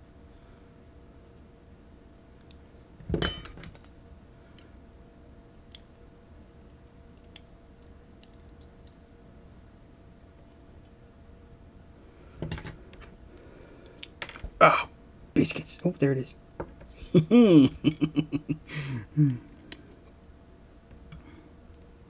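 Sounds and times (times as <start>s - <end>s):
small metal parts clinking: 3.2s - 3.9s.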